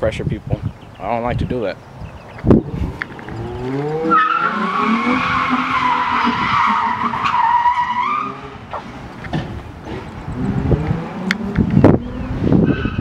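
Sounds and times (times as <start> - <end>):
car engine revving: 2.4 - 13.0
tyres squealing: 3.0 - 8.9.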